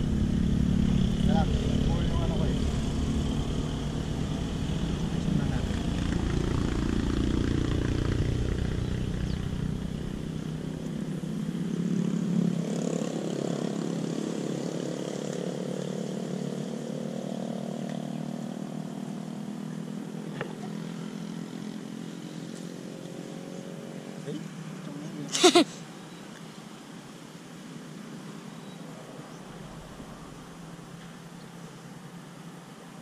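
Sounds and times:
passing motor vehicle engine: 0.0s - 25.3s.

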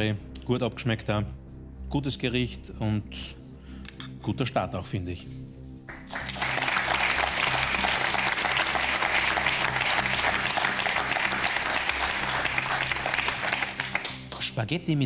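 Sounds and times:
group of people applauding: 5.9s - 14.5s.

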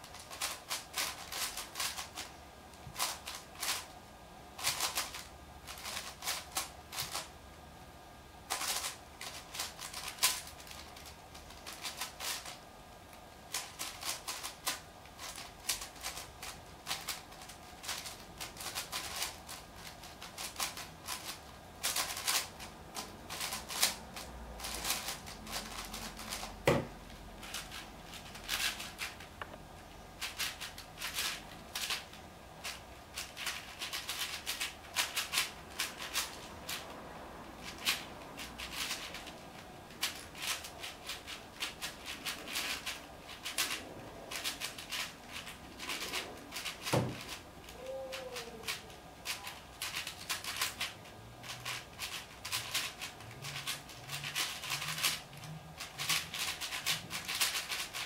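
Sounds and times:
plastic puzzle cube clacking: 0.0s - 2.3s, 2.9s - 3.9s, 4.6s - 7.3s, 8.5s - 12.6s, 13.5s - 29.5s, 30.2s - 36.9s, 37.7s - 58.0s
dull thump: 26.6s - 27.0s.

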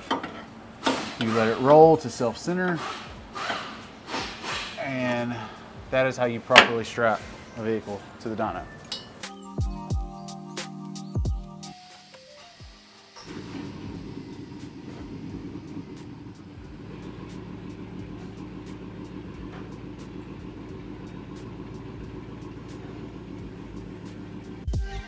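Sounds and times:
truck engine idling: 4.8s - 8.8s, 13.1s - 24.8s.

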